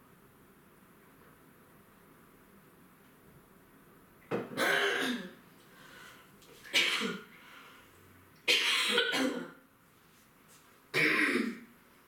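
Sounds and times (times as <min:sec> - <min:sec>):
woman coughing: 0:04.6 - 0:05.4, 0:06.8 - 0:07.3, 0:08.5 - 0:09.6, 0:11.0 - 0:11.7.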